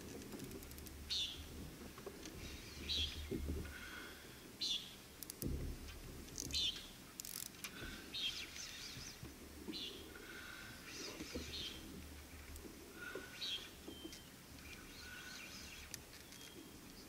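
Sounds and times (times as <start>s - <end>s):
bird calling: 13.0s - 16.8s.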